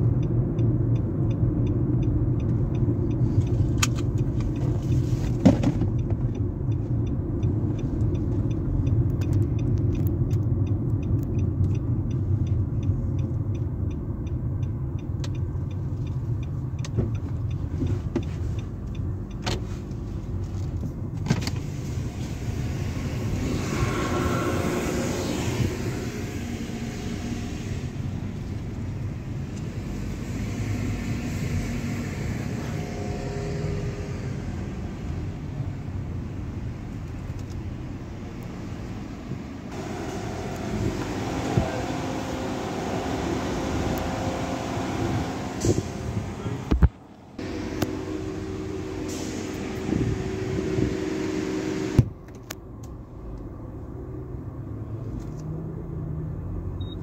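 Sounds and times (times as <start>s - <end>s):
car engine and road rumble: 0.0s - 57.0s
whooshing: 22.2s - 28.0s.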